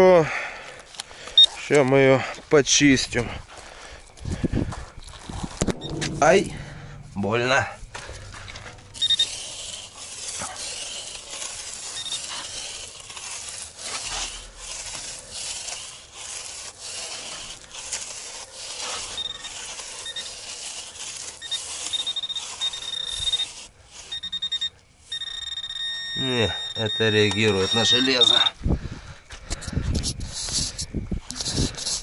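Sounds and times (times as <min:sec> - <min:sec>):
metal detector beeps: 0:01.3 - 0:01.6, 0:05.7 - 0:07.1, 0:08.0 - 0:09.7, 0:11.9 - 0:12.4, 0:19.1 - 0:28.6
digging through sand: 0:06.8 - 0:25.2, 0:26.2 - 0:28.6, 0:30.0 - 0:32.0.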